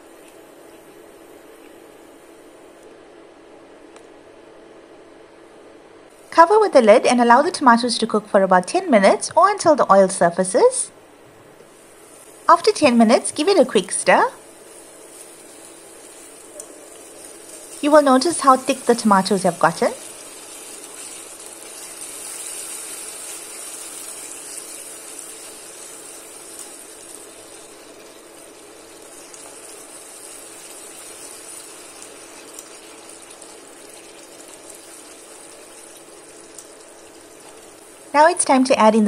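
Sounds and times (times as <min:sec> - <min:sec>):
gravy simmering and sizzling in a pan: 0:11.8 - 0:38.5.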